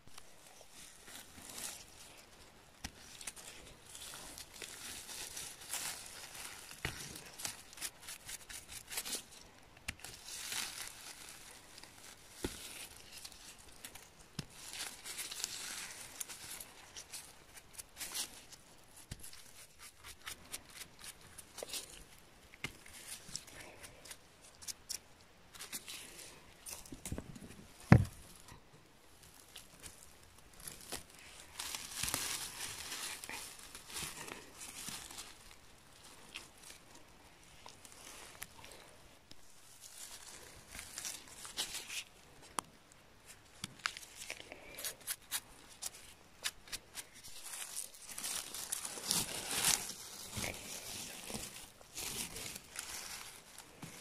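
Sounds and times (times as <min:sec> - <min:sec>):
gloved hands rustling mushrooms: 0:00.0 - 0:54.0.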